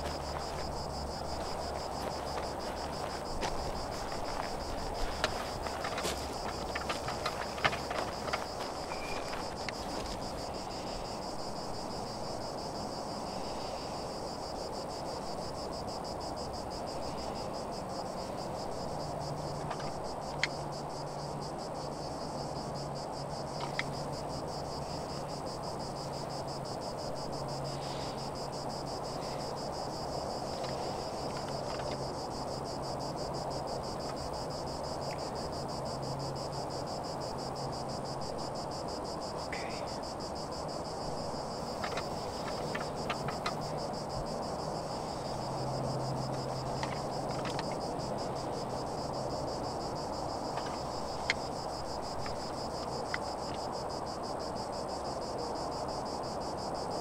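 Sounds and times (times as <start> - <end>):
insects trilling: 0.0 - 57.0
faint ticks: 23.5 - 24.0.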